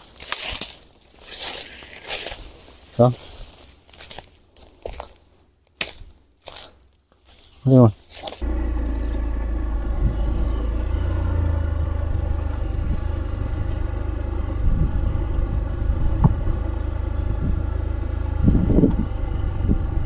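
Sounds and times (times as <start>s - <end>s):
motor engine running: 8.4s - 20.0s.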